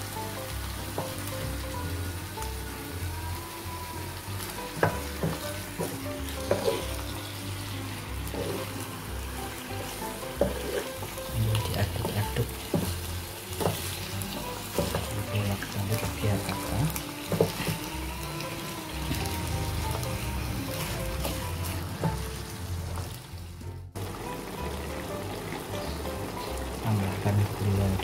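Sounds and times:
squid sizzling in a pan: 0.0 - 28.0
wooden spatula knocking pan: 4.8 - 7.0, 10.3 - 14.0, 14.7 - 15.3, 20.8 - 23.1.

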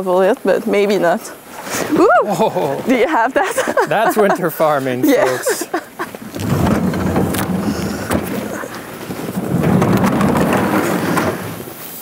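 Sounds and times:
heavy low rumbling: 6.2 - 11.7.

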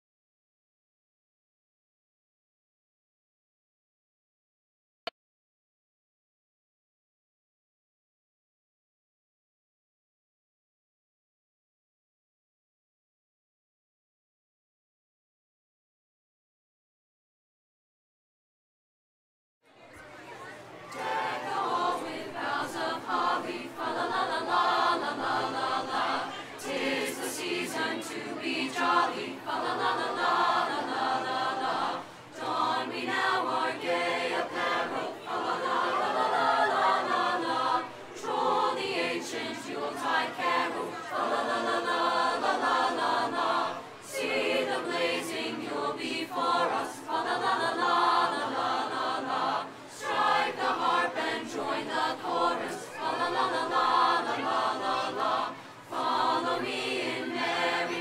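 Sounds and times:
choir singing: 20.9 - 58.0.

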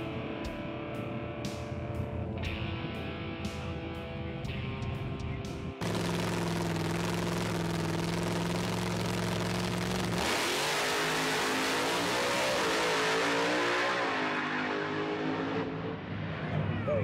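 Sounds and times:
guitar music: 0.0 - 5.9
race car engine accelerating: 5.8 - 16.7.

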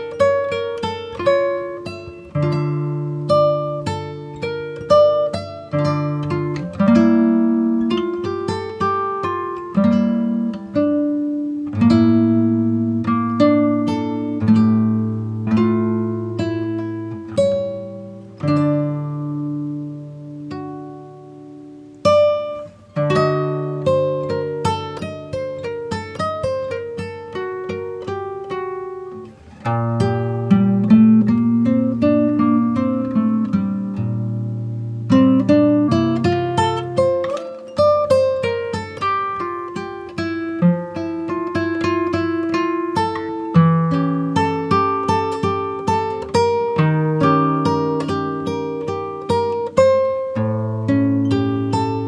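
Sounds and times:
acoustic guitar playing: 0.0 - 52.0
plucked string music: 0.0 - 52.0.

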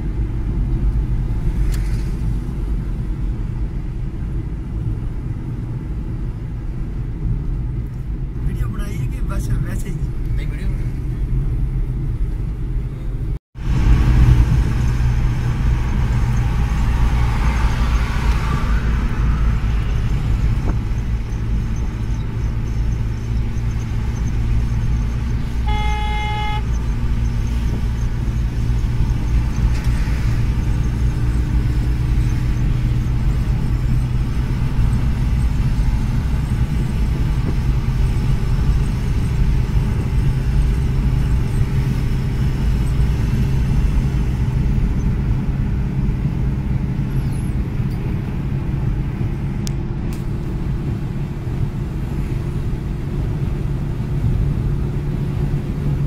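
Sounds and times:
car cabin road rumble: 0.0 - 56.0
vehicle horn toot: 25.6 - 26.8.

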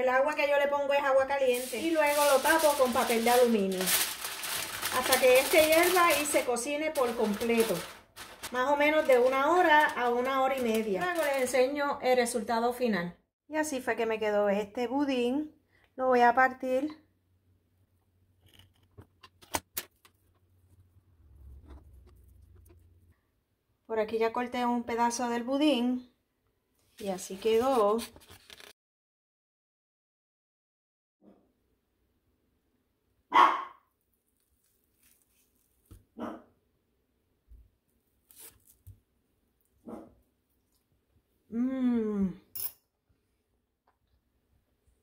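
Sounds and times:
dog barking: 33.3 - 33.9, 36.2 - 36.5, 39.8 - 40.2
spatula cutting bread pudding: 34.3 - 36.1.

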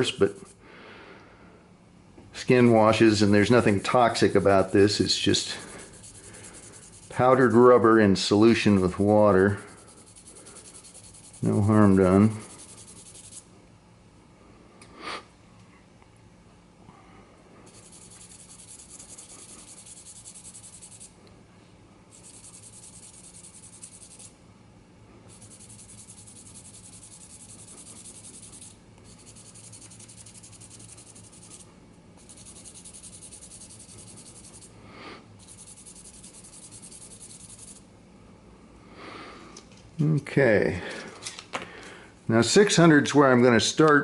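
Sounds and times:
sandpaper rubbing hiss: 2.9 - 7.6, 9.5 - 13.4, 17.7 - 21.1, 22.2 - 24.3, 25.3 - 34.7.

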